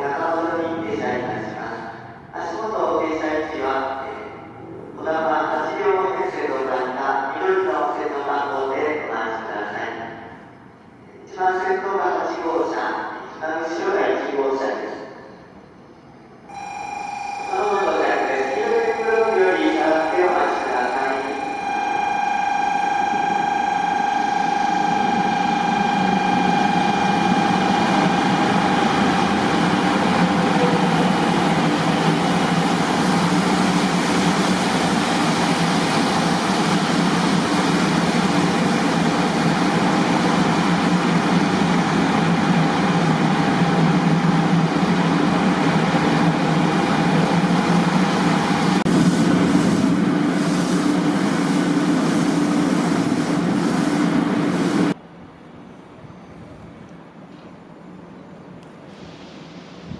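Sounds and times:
train rumbling past: 0:15.3 - 0:59.9
steady whine: 0:16.5 - 0:55.0.

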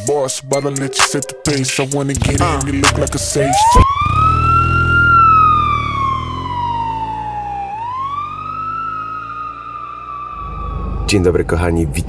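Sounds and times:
emergency vehicle siren wailing: 0:02.4 - 0:11.5.

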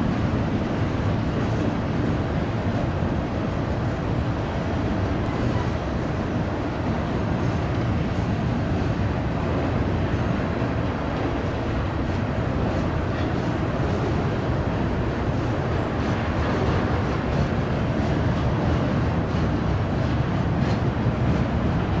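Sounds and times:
freight train rumbling past: 0:00.0 - 0:22.0.

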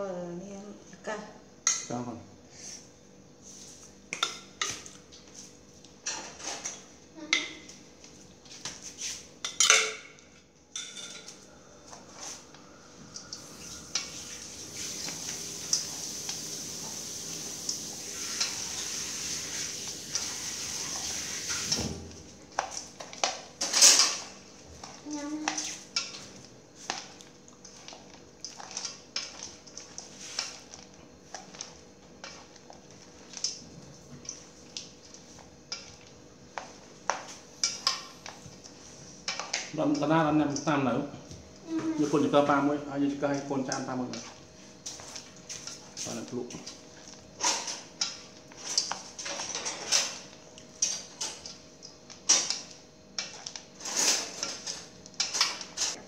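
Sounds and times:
rustling of tossed salad: 0:11.3 - 0:13.0, 0:13.9 - 0:39.9, 0:43.2 - 0:49.6.

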